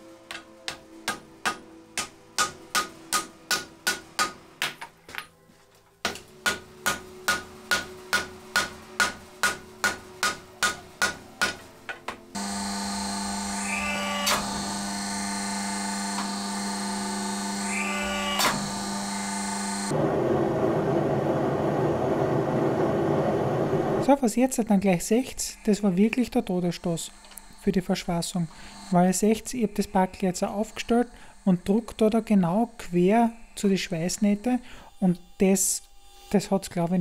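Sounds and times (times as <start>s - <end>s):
hammer striking steel on anvil: 0.3s - 4.8s, 6.0s - 11.7s
forging press humming: 6.2s - 24.0s.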